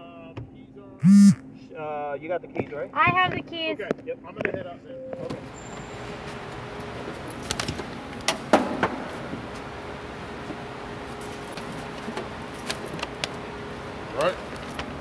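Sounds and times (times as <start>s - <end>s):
steady hum: 1.0s - 1.4s.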